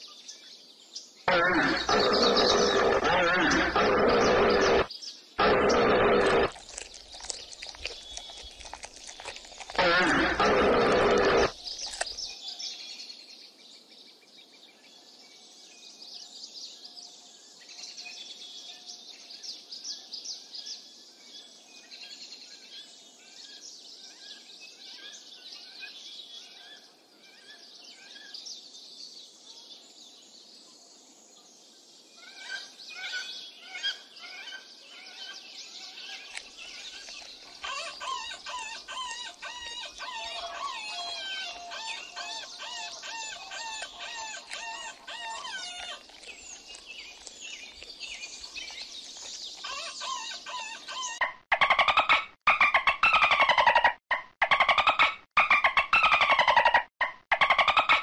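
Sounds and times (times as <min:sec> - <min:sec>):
small birds chirping: 0:00.0 - 0:13.9, 0:31.6 - 0:51.2
hippopotamus calling: 0:01.3 - 0:12.1, 0:36.3 - 0:50.9.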